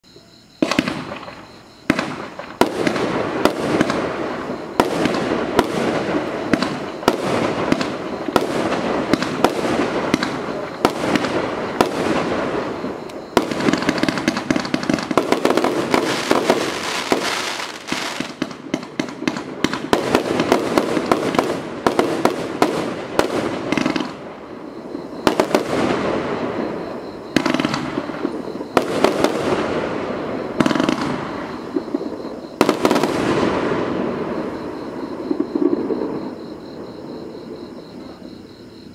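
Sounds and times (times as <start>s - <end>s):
firework launch thumps and bursts: 0.6s - 4.2s
firework crackle: 0.6s - 36.5s.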